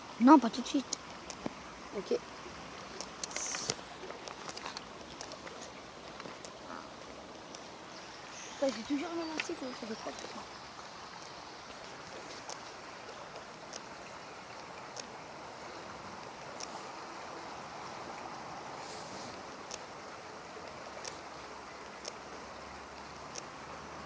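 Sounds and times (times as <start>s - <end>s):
river water rushing: 0.0s - 24.0s
faint ticks: 0.9s - 1.6s, 2.9s - 7.7s, 8.6s - 10.4s, 11.1s - 15.2s, 15.8s - 17.1s, 17.8s - 20.0s, 20.6s - 23.6s
short hiss: 3.2s - 3.9s.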